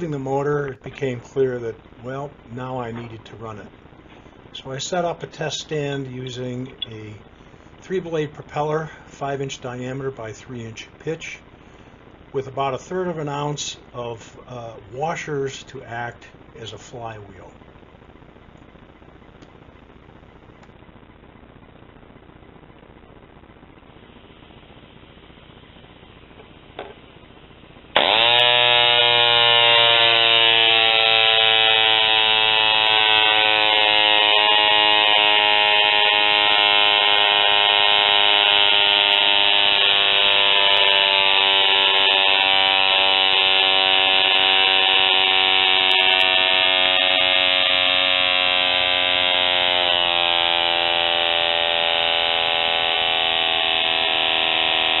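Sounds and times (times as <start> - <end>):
model engine high buzz: 28.0 - 55.0.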